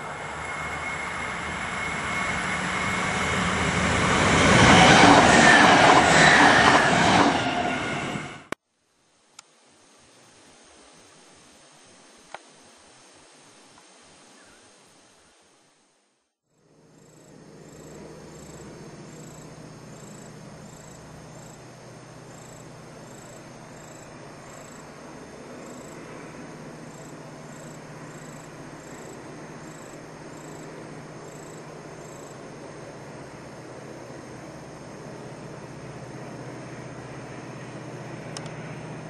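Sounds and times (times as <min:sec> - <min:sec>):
insects chirping: 0:00.0 - 0:08.1, 0:08.9 - 0:15.8, 0:16.5 - 0:39.0
diesel locomotive engine drone: 0:00.0 - 0:08.6, 0:16.5 - 0:39.0.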